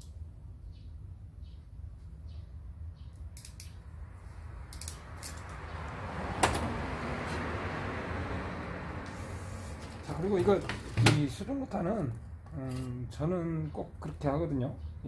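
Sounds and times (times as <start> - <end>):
pliers clicking and snapping: 3.3 - 3.8, 4.7 - 5.6.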